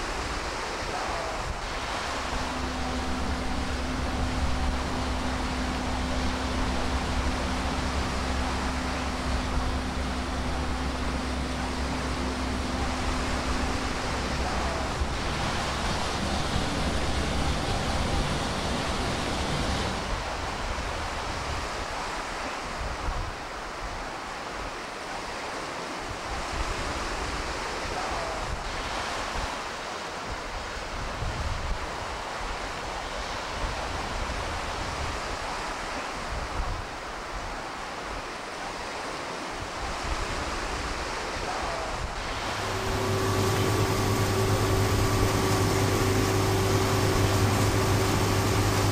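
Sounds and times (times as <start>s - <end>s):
low mechanical hum: 0.0s - 23.1s, 39.9s - 48.9s
steady rushing noise: 0.0s - 24.6s, 39.8s - 48.9s.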